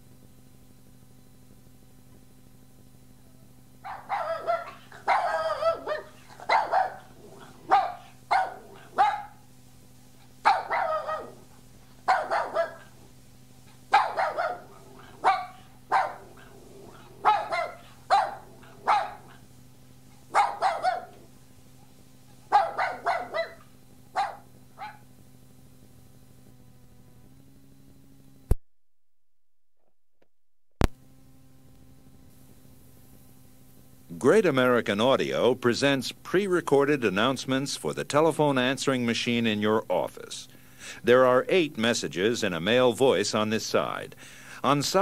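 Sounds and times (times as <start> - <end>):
faint steady hum: 0.0 - 28.6, 30.8 - 45.0
puppy barking: 3.8 - 9.4, 10.2 - 13.0, 13.7 - 19.5, 20.2 - 21.3, 22.3 - 25.1.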